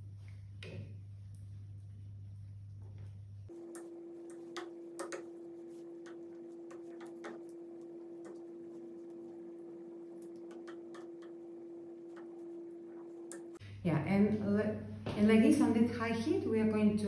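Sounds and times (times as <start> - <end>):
steady hum: 0.0 - 16.4.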